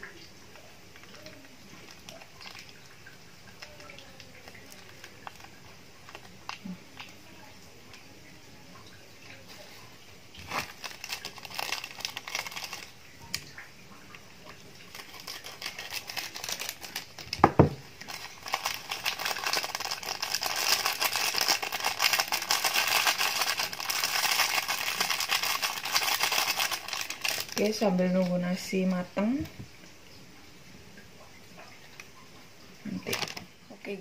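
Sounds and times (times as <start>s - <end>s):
plastic sachets crinkling: 0.9s - 7.4s, 9.5s - 29.1s, 32.9s - 33.8s.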